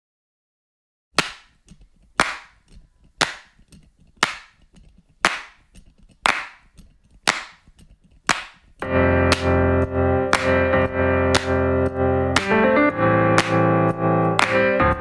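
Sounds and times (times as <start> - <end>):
sharp clap-like percussive hits: 1.2 - 1.6, 2.2 - 2.6, 3.2 - 3.6, 4.2 - 4.6, 5.2 - 9.6, 10.3 - 11.7, 12.3 - 12.6, 13.4 - 13.7, 14.4 - 15.0.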